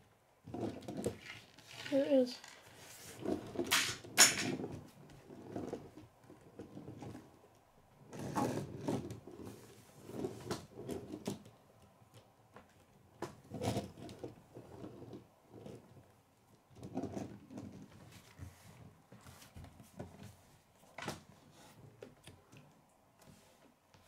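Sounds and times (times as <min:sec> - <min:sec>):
toy truck rattling on wooden table: 0:00.5 - 0:04.8.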